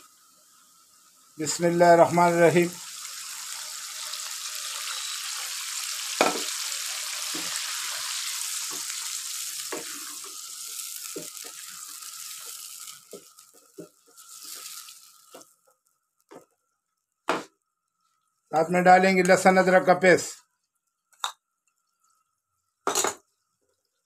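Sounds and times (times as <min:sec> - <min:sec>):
hot oil sizzling: 0:00.0 - 0:17.5
wooden spatula knocking on pan: 0:06.2 - 0:06.5, 0:17.3 - 0:17.5.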